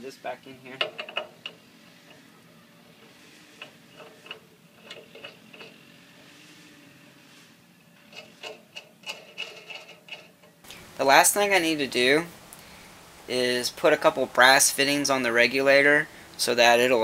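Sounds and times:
faint clicks and rubbing: 0:00.7 - 0:10.8.

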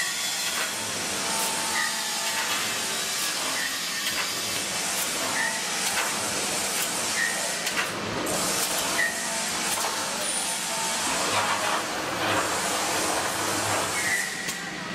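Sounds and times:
sharp machine clicks and knocks: 0:02.2 - 0:08.0.

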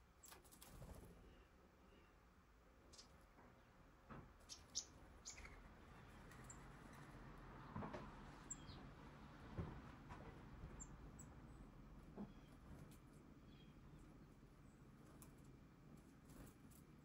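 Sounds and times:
songbirds chirping: 0:00.0 - 0:17.0.

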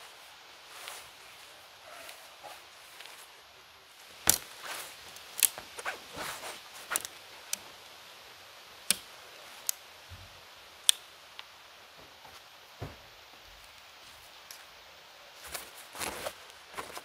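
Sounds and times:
tent gear clicks and snaps: 0:04.0 - 0:07.7, 0:15.4 - 0:17.0.

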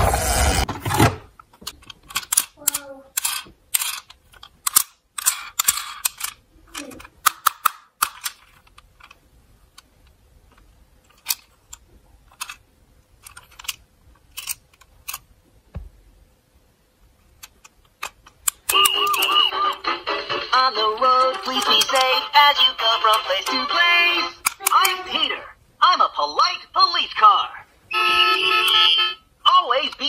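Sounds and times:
plastic toy car clicks and knocks: 0:00.7 - 0:09.2, 0:10.5 - 0:12.6, 0:13.2 - 0:15.2, 0:21.5 - 0:22.2, 0:24.4 - 0:25.0.

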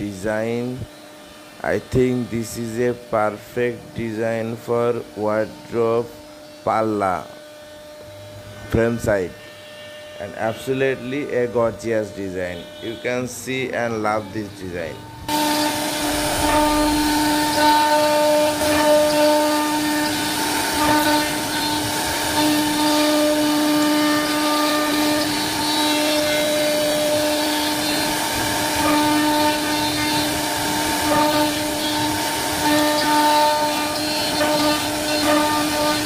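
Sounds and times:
router spindle whine: 0:00.0 - 0:36.0
bit cutting wood hiss: 0:15.3 - 0:36.0.

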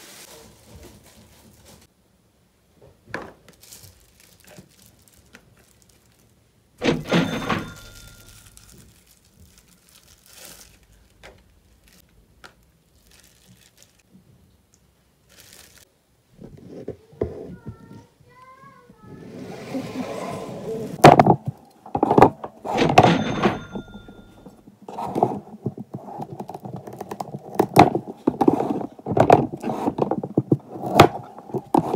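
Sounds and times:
plastic bags crinkling: 0:03.4 - 0:06.4, 0:07.8 - 0:14.1, 0:15.2 - 0:15.9
plastic container being handled: 0:23.8 - 0:31.9.

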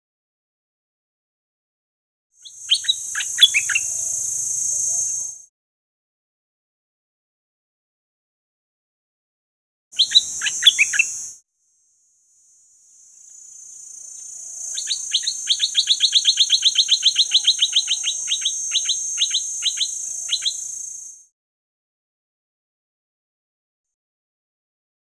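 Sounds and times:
high insect buzz: 0:02.4 - 0:05.5, 0:10.0 - 0:21.3.

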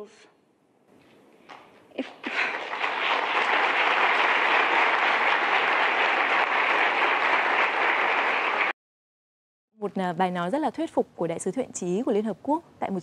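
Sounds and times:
audience applauding: 0:02.0 - 0:08.8.

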